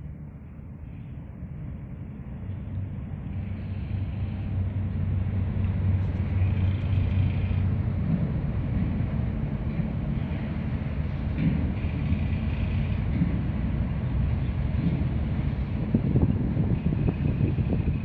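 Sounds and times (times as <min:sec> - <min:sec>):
cargo ship engine drone: 0:00.0 - 0:18.0.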